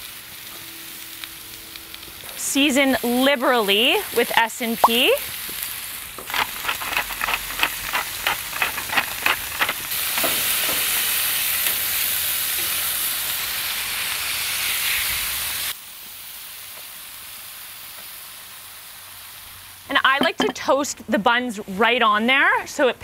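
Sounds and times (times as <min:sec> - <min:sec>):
patties sizzling on griddle: 0:00.0 - 0:21.8.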